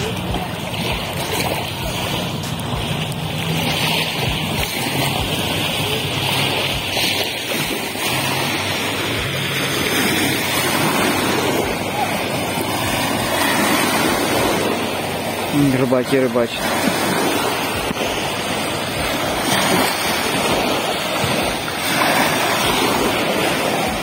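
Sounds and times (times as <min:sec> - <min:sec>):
small waves splashing on pebbles: 0:00.0 - 0:24.0.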